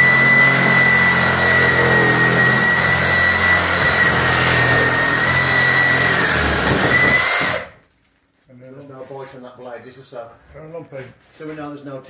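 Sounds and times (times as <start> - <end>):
power saw cutting timber: 0.0 - 7.8.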